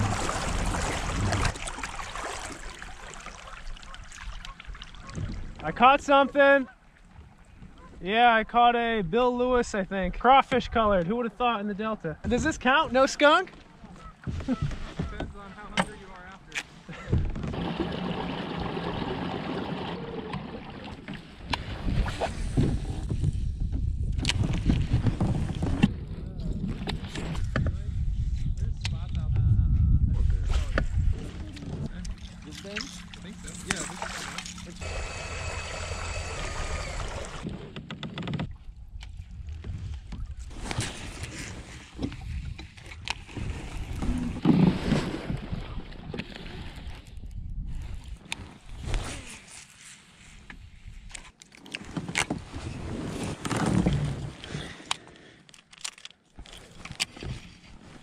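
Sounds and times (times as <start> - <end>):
water washing against kayak hull: 0.0 - 8.0, 12.2 - 27.6, 30.6 - 50.7, 51.6 - 54.9
wind buffeting microphone: 21.7 - 32.5.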